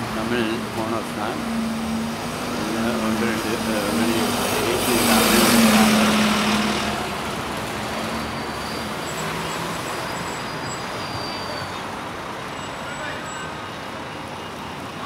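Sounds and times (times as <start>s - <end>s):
road traffic noise: 0.0s - 15.0s
vehicle passing close: 1.0s - 8.4s.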